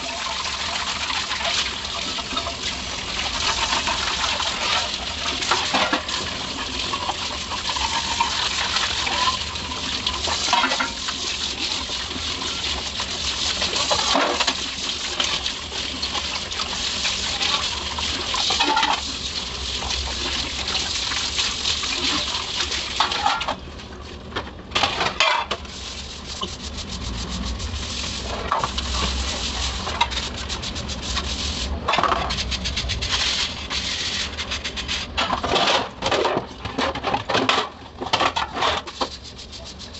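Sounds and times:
tap water running into sink: 0:00.0 - 0:23.6.

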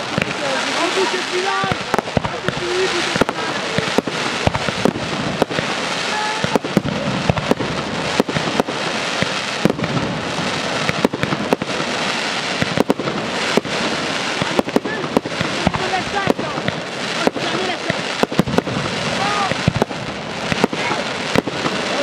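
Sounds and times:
fireworks crackling: 0:00.0 - 0:22.0
sharp firework bangs: 0:00.0 - 0:22.0.

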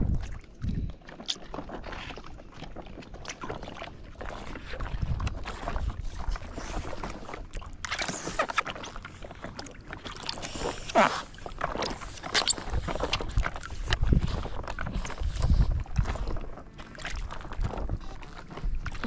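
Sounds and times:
water splashing around boat: 0:00.0 - 0:19.0
falling squeak: 0:08.0 - 0:08.5.

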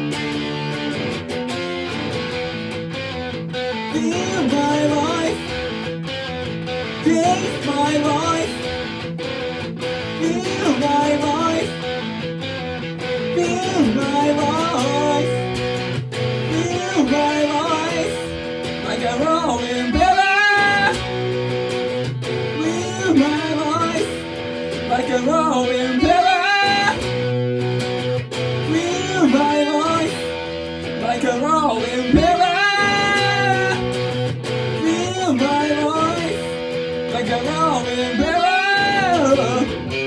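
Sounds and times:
electric guitar: 0:00.0 - 0:40.0
man singing: 0:03.7 - 0:05.9, 0:06.8 - 0:09.0, 0:10.1 - 0:12.2, 0:13.1 - 0:21.3, 0:21.9 - 0:27.4, 0:28.4 - 0:40.0.

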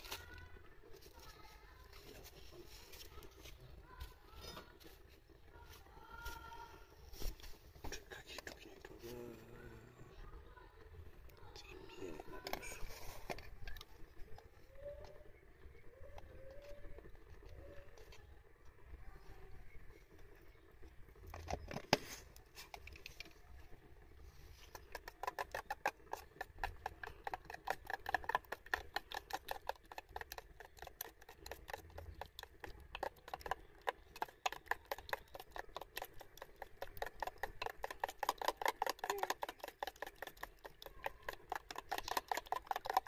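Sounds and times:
metal spoon beating batter: 0:24.7 - 0:43.0.

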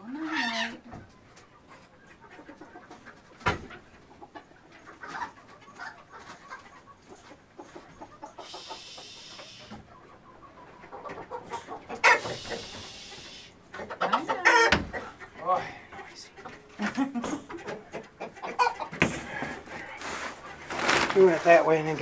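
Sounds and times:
chickens clucking: 0:00.0 - 0:22.0
hissing rustle: 0:08.4 - 0:09.8, 0:12.2 - 0:13.6.

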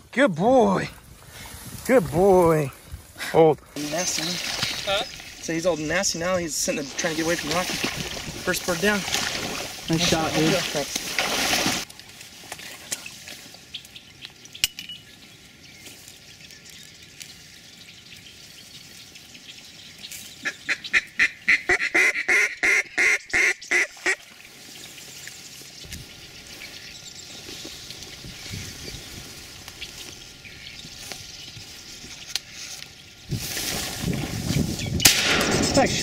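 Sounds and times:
duck quacking: 0:20.4 - 0:24.2.

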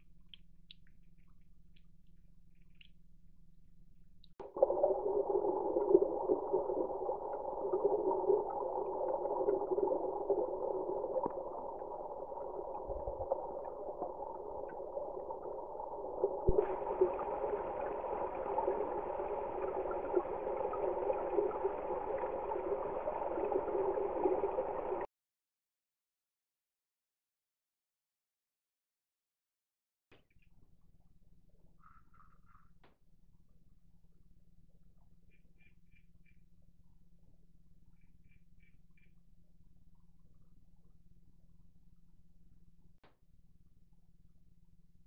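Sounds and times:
creek water rushing: 0:04.5 - 0:25.0.

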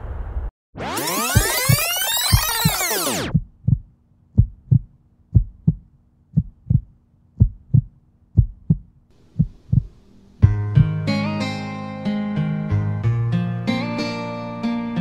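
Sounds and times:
heartbeat thumps: 0:01.4 - 0:11.0
faint steady hum: 0:09.1 - 0:10.6.

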